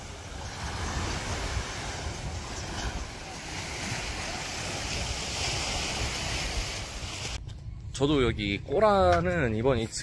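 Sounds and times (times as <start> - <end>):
small waves washing up beach: 0.0 - 7.4
wind rumbling on microphone: 0.0 - 10.0.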